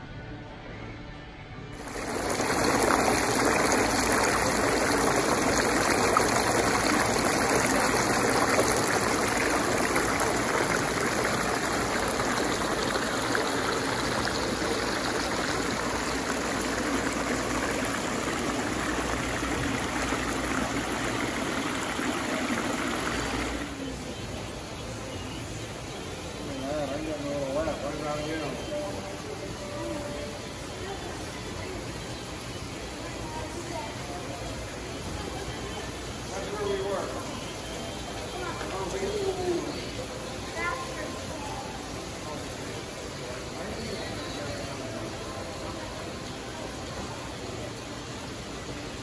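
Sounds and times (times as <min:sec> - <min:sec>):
waterfall splashing into pool: 0:01.8 - 0:49.0.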